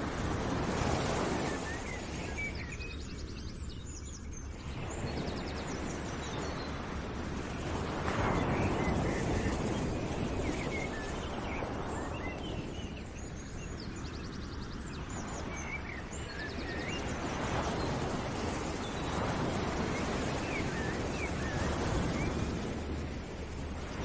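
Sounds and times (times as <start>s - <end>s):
steady rushing noise: 13.1s - 24.0s.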